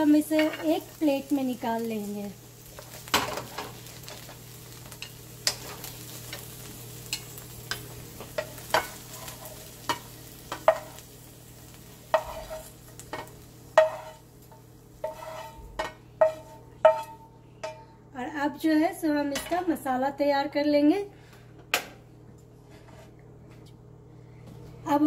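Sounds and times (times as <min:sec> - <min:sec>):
oil sizzling: 0:00.0 - 0:18.0
spatula scraping a frying pan: 0:08.2 - 0:11.0, 0:12.1 - 0:17.9, 0:22.6 - 0:23.1.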